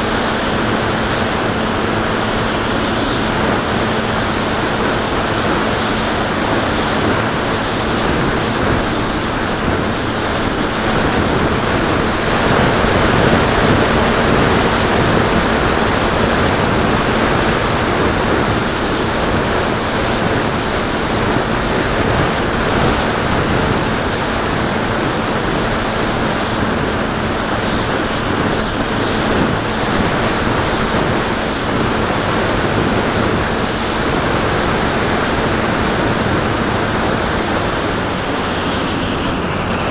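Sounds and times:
electric motor and propeller tone: 0:00.0 - 0:39.9
wind rushing over camera: 0:00.0 - 0:39.9.

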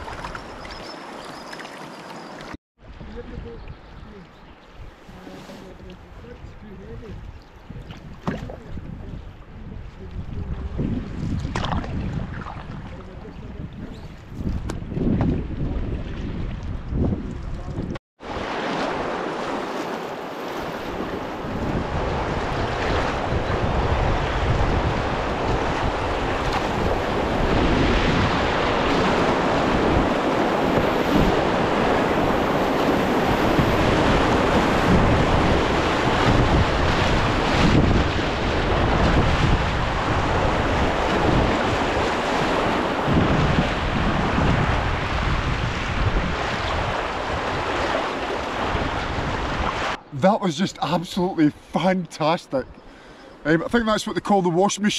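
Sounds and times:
wind buffeting the microphone: 0:02.8 - 0:18.4, 0:20.6 - 0:50.0
rushing white water: 0:18.2 - 0:52.4.

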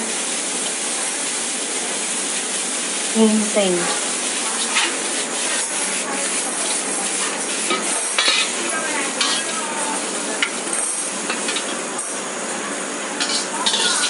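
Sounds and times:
noodles sizzling in a wok: 0:00.0 - 0:14.0
ladle clinking against wok: 0:07.3 - 0:09.6, 0:13.2 - 0:14.0.

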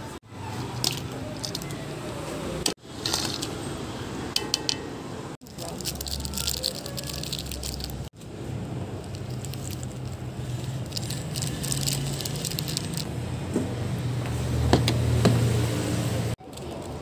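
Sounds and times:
foil sachets crinkling: 0:05.4 - 0:08.1, 0:09.1 - 0:13.1.

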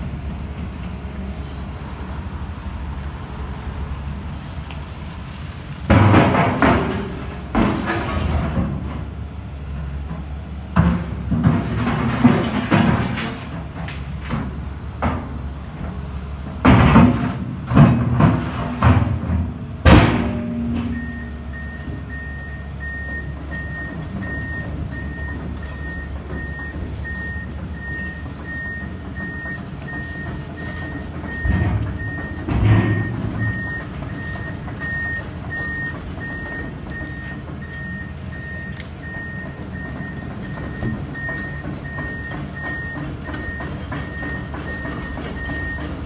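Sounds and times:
excavator engine running: 0:00.0 - 0:46.0
loud bangs: 0:16.7 - 0:21.6
excavator travel alarm beeping: 0:20.3 - 0:46.0.

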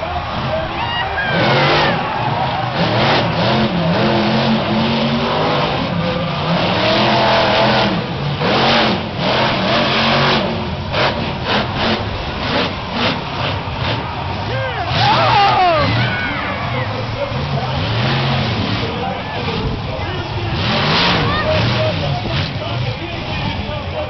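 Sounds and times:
monster truck engine revving: 0:00.0 - 0:24.0.

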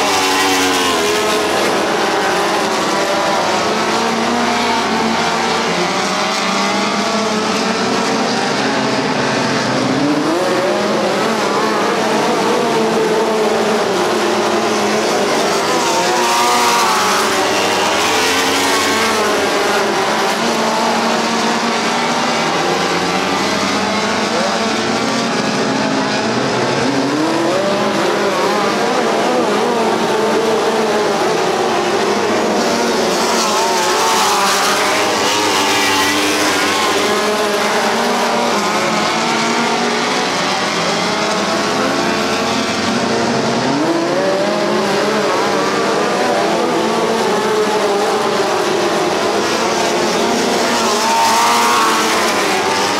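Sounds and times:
race car engines: 0:00.0 - 0:52.9.

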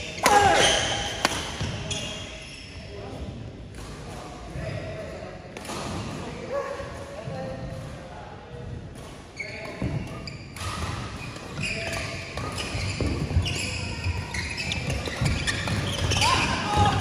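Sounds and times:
shoes squeaking on court: 0:01.6 - 0:02.9, 0:09.4 - 0:17.0.

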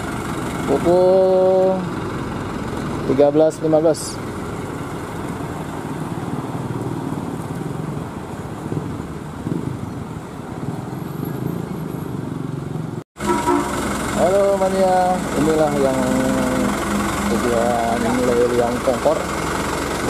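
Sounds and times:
bus engine running: 0:00.0 - 0:11.4, 0:12.0 - 0:20.0.

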